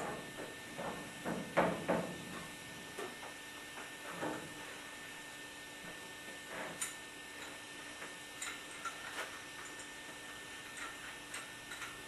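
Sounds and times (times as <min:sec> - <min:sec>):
knocks and clanks of metal tools: 0:00.0 - 0:02.2.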